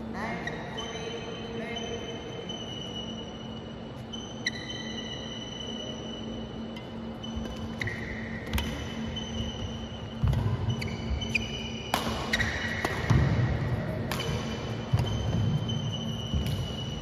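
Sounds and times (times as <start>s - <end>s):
shoes squeaking on floor: 0.3s - 13.3s, 14.2s - 17.0s
racket hitting shuttlecock: 8.4s - 9.2s, 10.2s - 17.0s.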